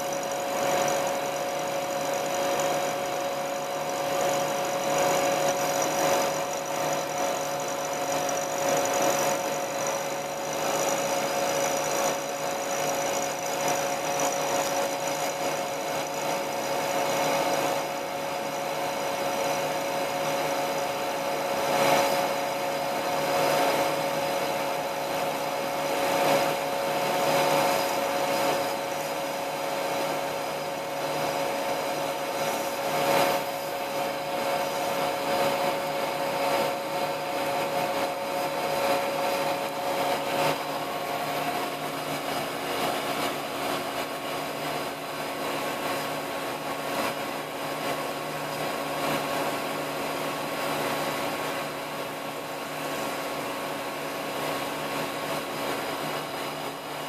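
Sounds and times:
milling machine whine: 0.0 - 57.0.

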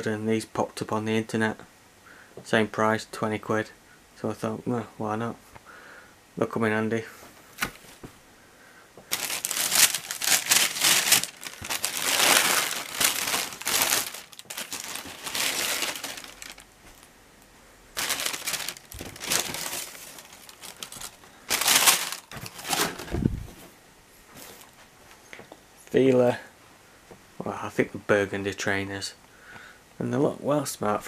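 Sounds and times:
tissue paper rustling and crinkling: 9.1 - 17.1, 18.0 - 23.6.

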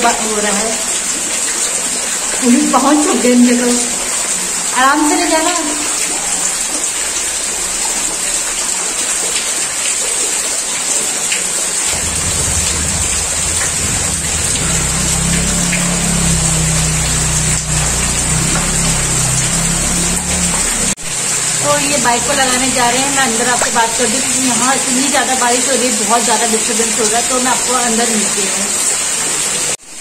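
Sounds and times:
heavy rain pouring: 0.0 - 30.0
motorcycle engine running: 11.9 - 23.3.

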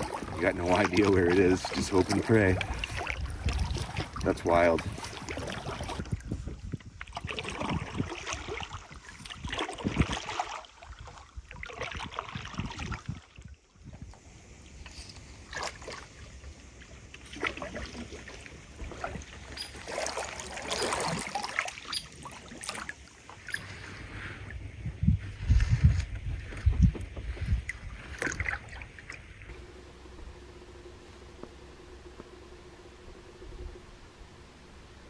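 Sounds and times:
paddle splashing in water: 0.0 - 13.6, 14.9 - 24.6, 25.4 - 29.6
low steady rumble: 23.0 - 35.0.

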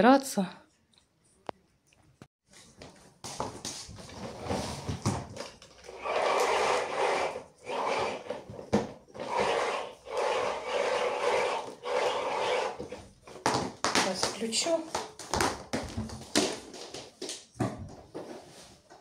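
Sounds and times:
vacuum cord pulled from reel: 5.9 - 8.3, 9.2 - 12.8.

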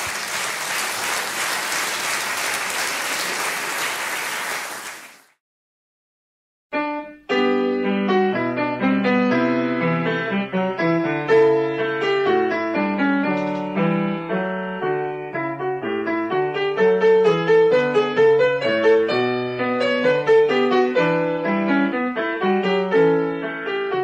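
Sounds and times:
lively piano music: 6.7 - 24.0.

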